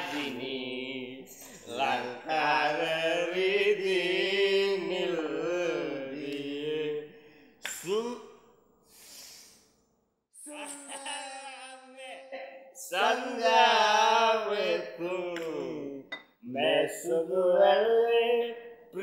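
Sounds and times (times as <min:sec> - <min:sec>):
man chanting: 0:00.0 - 0:07.1, 0:07.7 - 0:08.4, 0:12.8 - 0:19.0
breathy exhale: 0:08.9 - 0:09.7.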